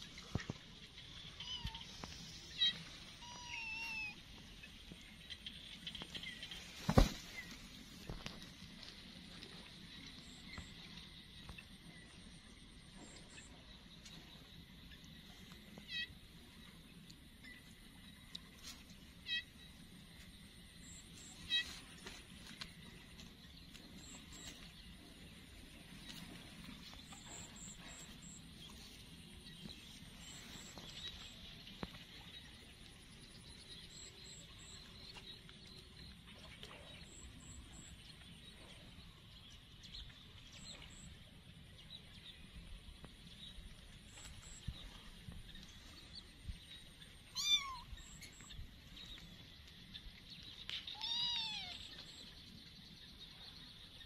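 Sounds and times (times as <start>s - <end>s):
kitten meowing: 47.3s - 47.9s, 50.9s - 51.8s.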